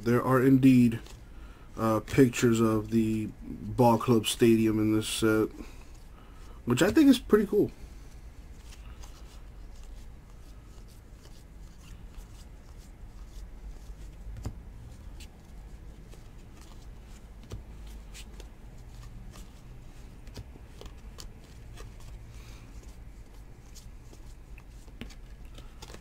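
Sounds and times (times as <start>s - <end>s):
baseball cards flicking by hand: 8.5s - 26.0s.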